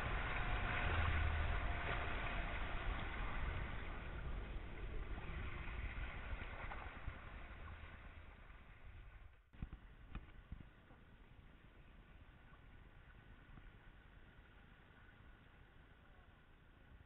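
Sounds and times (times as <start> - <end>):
water rushing past boat hull: 0.0 - 10.2.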